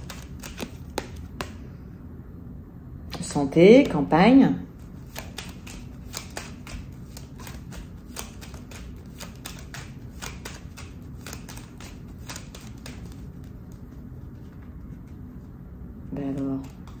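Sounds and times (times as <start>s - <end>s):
cards being shuffled: 0.0s - 1.7s, 4.7s - 15.5s, 16.1s - 17.0s.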